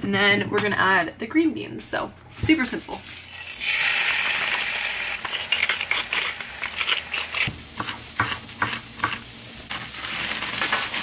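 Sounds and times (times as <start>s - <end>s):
meat sizzling in a skillet: 3.3s - 11.0s
knife chopping on wooden board: 7.4s - 9.2s.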